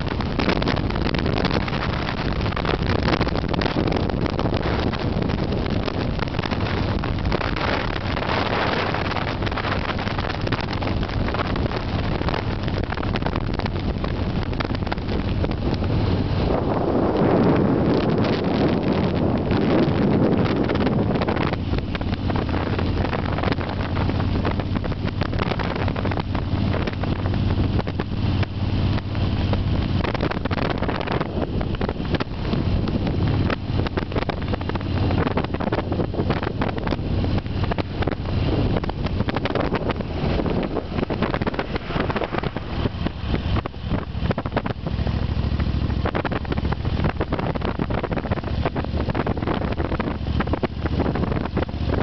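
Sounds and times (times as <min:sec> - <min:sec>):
car engine and tyre rumble: 0:00.0 - 0:52.0
wind buffeting microphone: 0:00.0 - 0:52.0.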